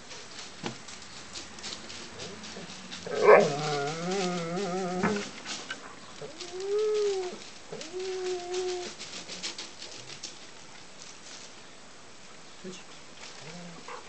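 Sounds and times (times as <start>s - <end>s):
puppy whining: 3.0s - 5.4s, 6.2s - 9.1s.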